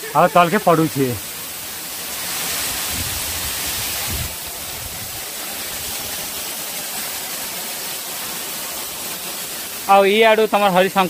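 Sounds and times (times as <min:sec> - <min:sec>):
waterfall splashing onto rock: 0:00.1 - 0:11.0.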